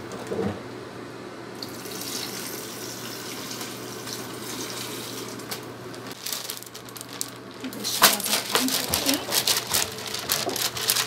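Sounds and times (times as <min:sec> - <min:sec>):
water pouring and splashing: 0:01.6 - 0:06.8.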